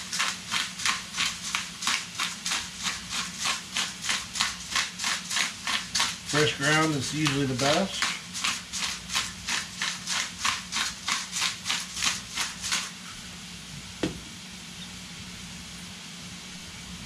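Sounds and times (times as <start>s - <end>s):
pepper mill grinding: 0.0s - 13.0s
frying pan sizzling: 0.0s - 17.0s
sharp knock: 14.0s - 14.3s.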